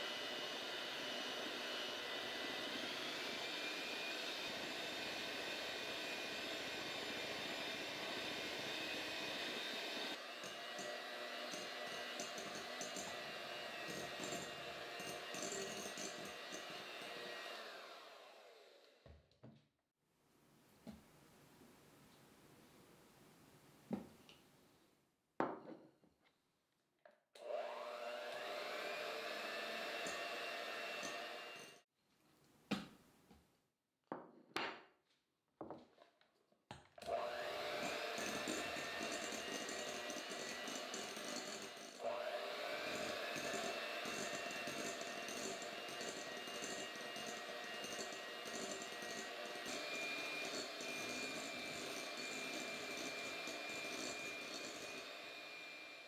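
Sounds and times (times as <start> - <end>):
electric hand mixer running: 0.0 - 18.9, 27.4 - 31.8, 37.0 - 56.0
spatula knocking and scraping: 10.4 - 17.0, 37.7 - 42.0, 42.7 - 55.2.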